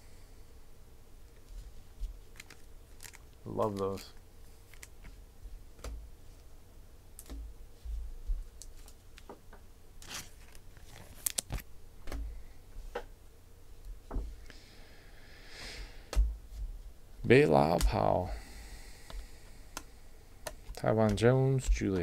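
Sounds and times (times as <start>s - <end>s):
cards rustling: 2.0s - 5.2s, 10.0s - 11.6s
cards clicking and tapping: 19.0s - 22.0s.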